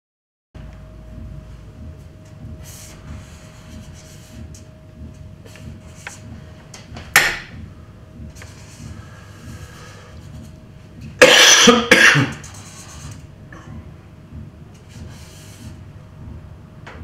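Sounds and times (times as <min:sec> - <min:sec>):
marker squeaking on paper: 0:12.3 - 0:13.2, 0:14.9 - 0:15.8.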